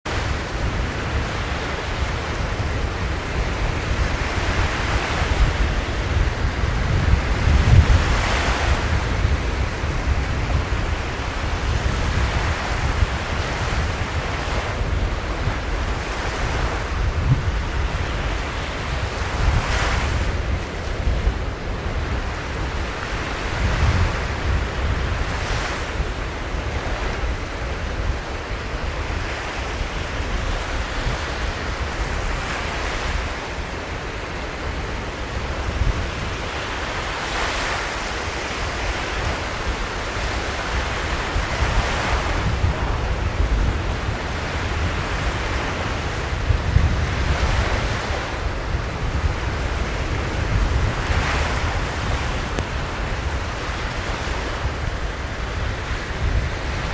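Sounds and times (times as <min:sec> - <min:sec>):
wind rumbling on microphone: 0:00.0 - 0:56.9
surf breaking on shore: 0:00.1 - 0:56.9.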